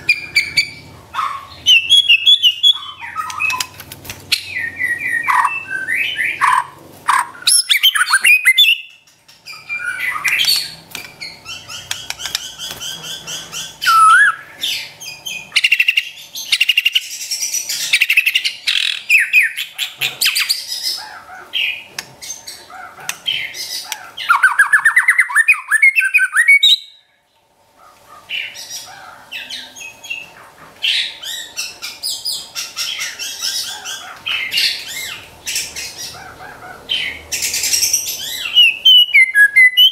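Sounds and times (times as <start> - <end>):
bird singing whistles and trills: 1.6 - 3.7, 4.3 - 6.4, 7.4 - 20.9, 24.2 - 27.0, 37.0 - 39.9.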